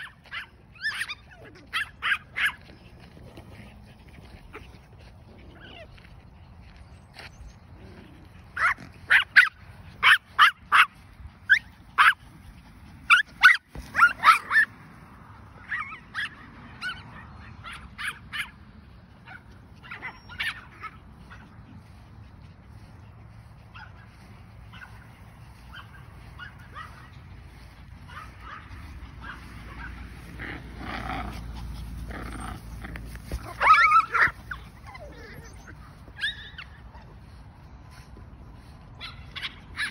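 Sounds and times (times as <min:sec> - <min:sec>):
small dogs barking high-pitched: 0:00.0 - 0:02.8, 0:08.5 - 0:12.4, 0:13.0 - 0:14.8, 0:15.4 - 0:18.6, 0:19.2 - 0:22.0, 0:23.6 - 0:37.3, 0:38.9 - 0:39.9.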